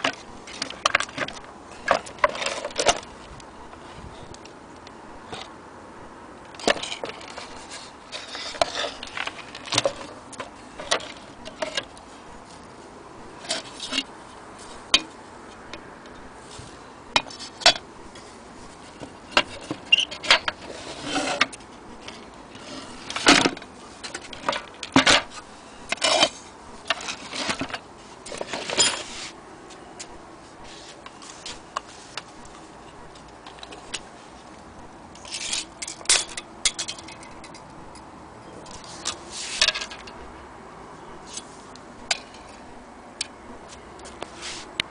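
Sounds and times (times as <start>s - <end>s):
metal parts and chain rattling: 18.9s - 29.2s, 35.2s - 40.2s.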